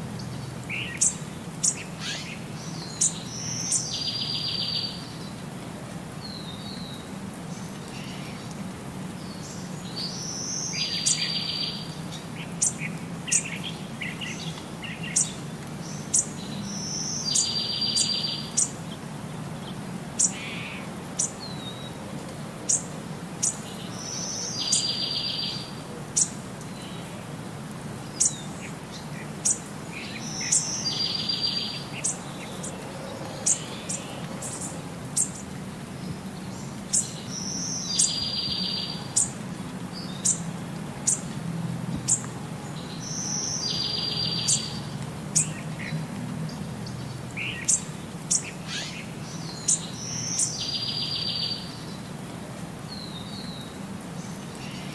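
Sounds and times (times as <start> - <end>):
birds chirping: 0.2 - 5.4, 9.2 - 22.0, 28.0 - 41.4, 42.0 - 52.2.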